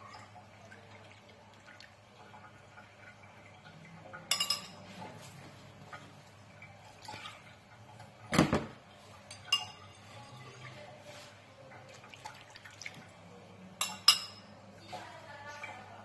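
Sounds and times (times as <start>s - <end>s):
metal spoon clinking in ceramic bowl: 4.3s - 4.8s, 9.3s - 10.2s, 13.8s - 14.5s.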